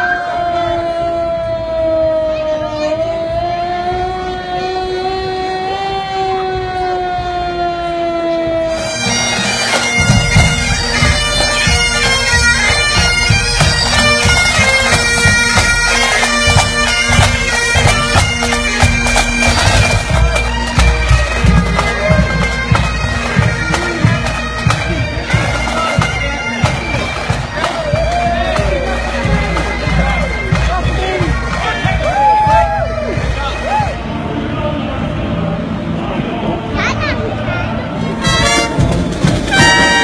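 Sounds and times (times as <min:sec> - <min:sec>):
bagpipes playing: 0:00.0 - 0:33.8, 0:38.0 - 0:40.0
drum beats: 0:08.7 - 0:34.0, 0:38.2 - 0:40.0.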